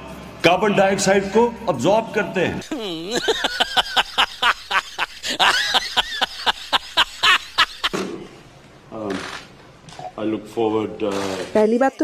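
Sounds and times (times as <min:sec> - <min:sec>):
person cackling laughter: 0:02.6 - 0:08.0.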